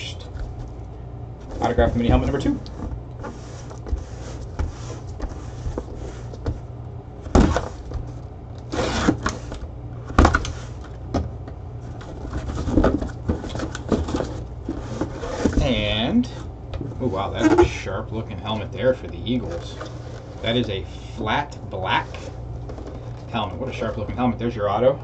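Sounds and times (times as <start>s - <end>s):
cardboard flaps rustling and scraping: 1.4s - 17.9s, 18.9s - 20.8s, 21.8s - 24.3s
cardboard box knocks: 7.3s - 8.0s.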